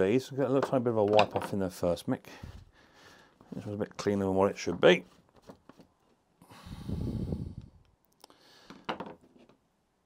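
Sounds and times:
man breathing out heavily: 2.4 - 3.4, 6.4 - 8.9.

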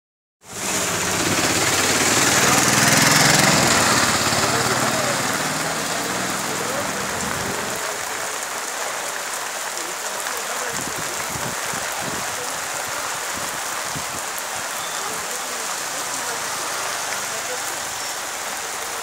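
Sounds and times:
rain falling on street: 0.4 - 19.0
small engine: 0.5 - 6.2.

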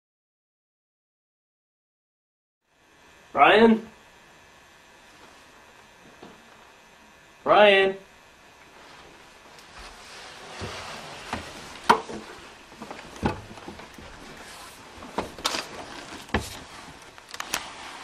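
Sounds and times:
wooden knocks and clunks: 10.6 - 14.4, 15.0 - 16.7.

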